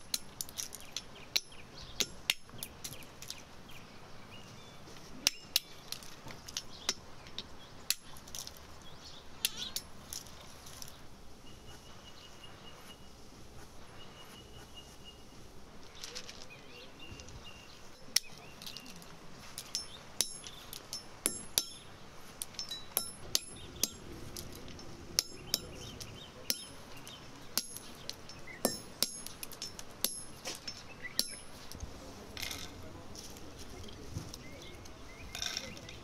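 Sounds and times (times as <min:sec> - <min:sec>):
pestle knocking brass mortar: 0:20.2 - 0:21.8, 0:28.6 - 0:30.4.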